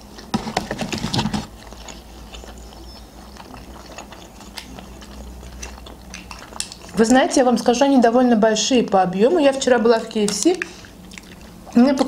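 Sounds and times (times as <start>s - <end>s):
crunchy biting and chewing: 0.0s - 7.2s.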